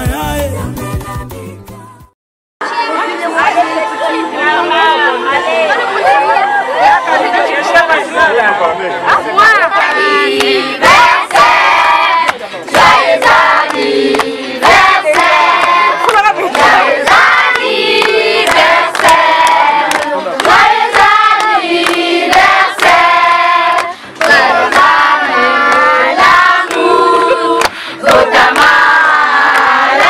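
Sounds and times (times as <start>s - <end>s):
women and children singing: 2.6s - 7.3s, 9.1s - 30.0s
hand claps: 12.2s - 23.0s, 27.6s - 28.8s.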